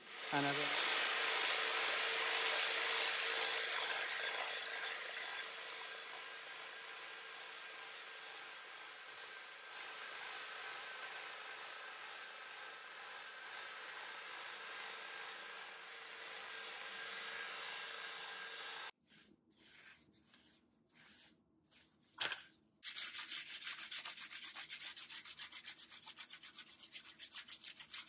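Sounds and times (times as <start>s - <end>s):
tool rubbing on metal strip: 19.0s - 28.0s.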